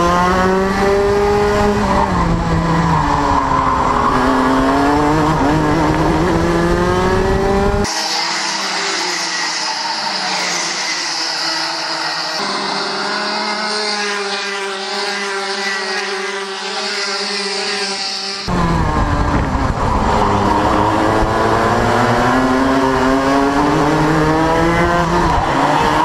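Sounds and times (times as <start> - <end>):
distant kart engines: 0.0 - 26.0
kart engine close up: 0.0 - 26.0
wind rumble: 18.5 - 26.0.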